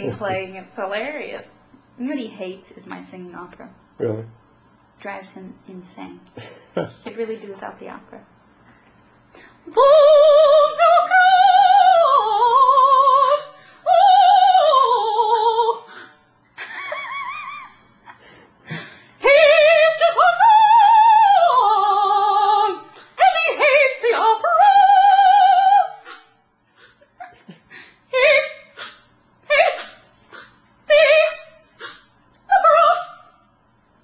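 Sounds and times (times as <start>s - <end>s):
woman singing opera: 9.7s - 15.9s, 19.2s - 26.0s, 28.1s - 28.6s, 29.4s - 29.8s, 30.9s - 31.5s, 32.5s - 33.2s.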